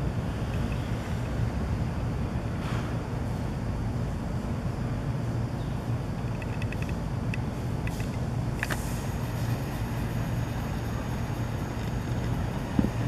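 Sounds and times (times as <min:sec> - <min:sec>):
distant jet engines rumble: 0:00.0 - 0:13.0
thin high whine: 0:07.8 - 0:13.0.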